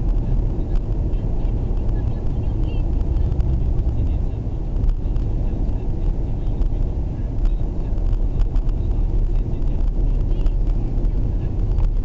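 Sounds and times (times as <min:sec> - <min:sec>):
car cabin road and engine rumble: 0:00.0 - 0:12.0.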